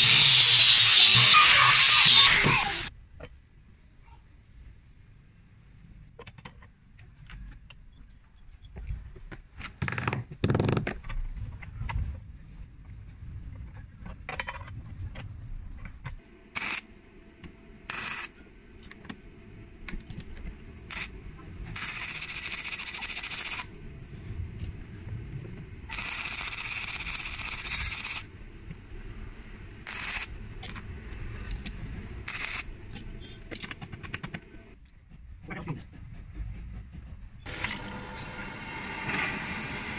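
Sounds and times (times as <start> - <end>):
steady hissing bursts: 0.0 - 2.9, 16.3 - 17.0, 17.6 - 19.8, 20.6 - 23.7, 37.5 - 39.9.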